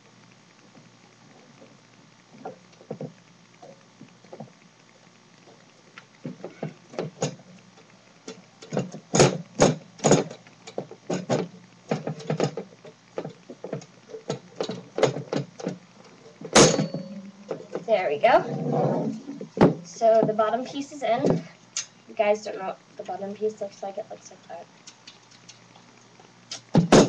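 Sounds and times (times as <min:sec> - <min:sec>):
wooden bed frame pieces knocking: 0:08.7 - 0:10.3, 0:26.7 - 0:27.0.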